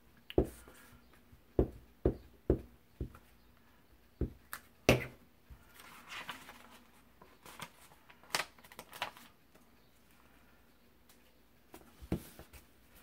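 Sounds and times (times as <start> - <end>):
paper rustling: 5.6 - 9.3.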